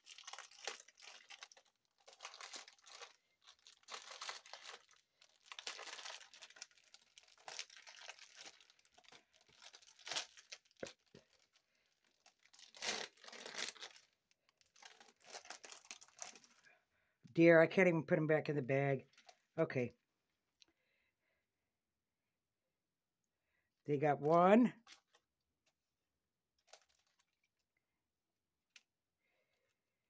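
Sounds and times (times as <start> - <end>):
plastic bags crinkling: 0.0 - 16.6, 19.1 - 19.4, 26.6 - 27.4.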